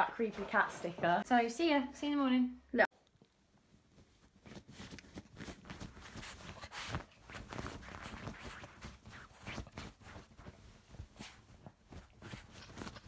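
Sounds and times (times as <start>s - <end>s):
dog scratching at duvet: 3.9s - 13.0s.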